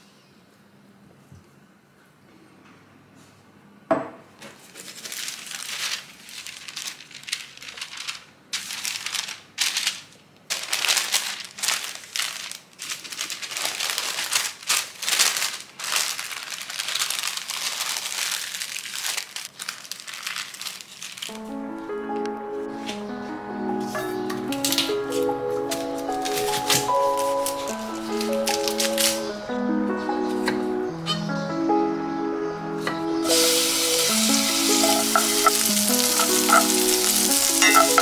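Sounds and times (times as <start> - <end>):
baking paper crinkling: 4.4 - 21.5, 23.8 - 29.3, 33.3 - 38.0.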